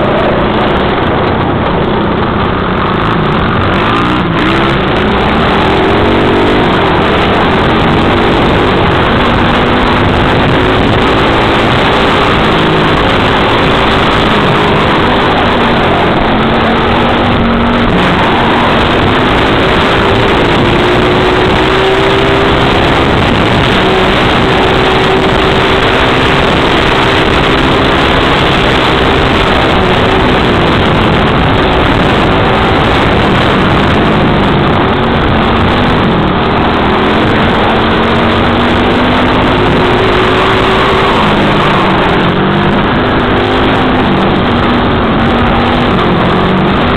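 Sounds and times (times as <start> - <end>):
constant rush of noise: 0.0 - 46.9
motorbike engine revving: 0.0 - 46.9.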